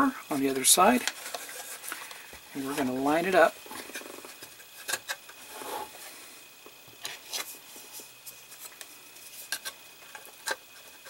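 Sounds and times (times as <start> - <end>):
plastic parts rubbing: 0.3 - 6.1, 7.0 - 11.0.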